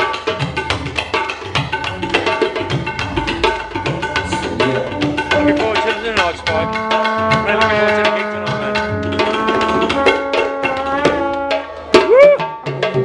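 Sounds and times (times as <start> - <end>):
hand drum: 0.0 - 13.0
tabla hand strokes: 0.0 - 13.0
long held instrument notes: 3.2 - 12.4.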